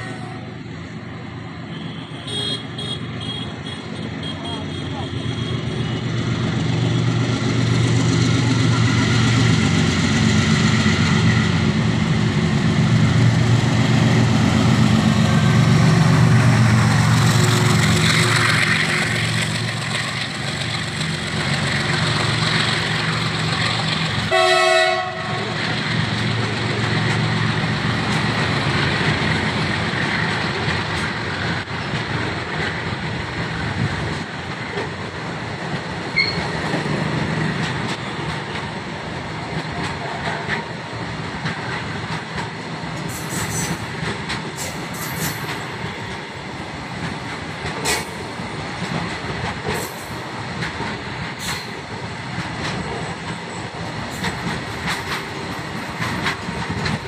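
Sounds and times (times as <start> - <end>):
diesel locomotive engine throbbing: 3.6 - 57.0
train horn blast: 24.3 - 25.6.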